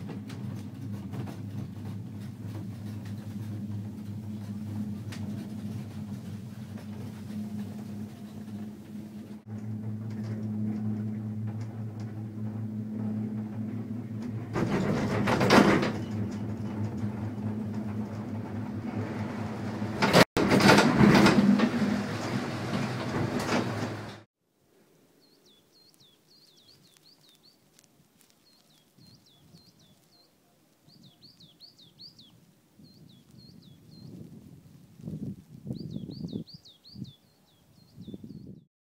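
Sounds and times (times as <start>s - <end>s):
cabins rumbling through station: 0.0s - 24.3s
gondola lift machine hum: 0.0s - 24.3s
small birds chirping: 25.1s - 38.6s.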